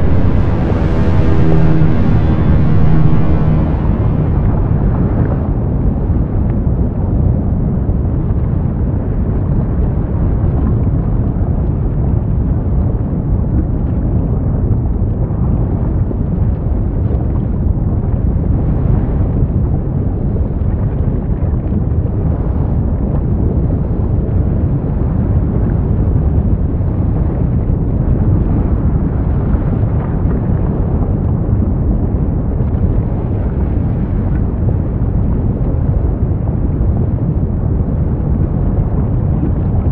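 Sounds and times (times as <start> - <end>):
volcano rumbling roar: 0.0 - 6.4.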